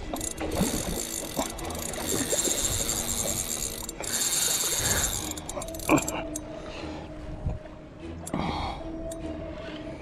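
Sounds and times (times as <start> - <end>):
fishing reel drag buzzing: 0.1 - 6.1.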